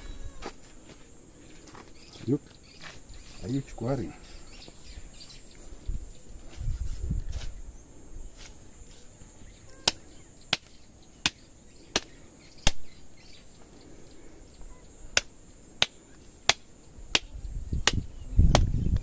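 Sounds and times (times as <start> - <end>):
machete chopping through ribs: 15.1 - 18.8.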